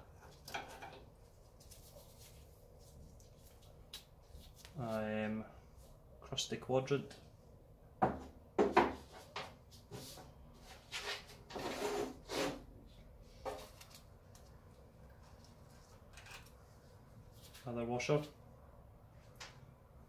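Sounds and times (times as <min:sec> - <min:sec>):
metal scraping and rubbing: 0:10.7 - 0:12.7.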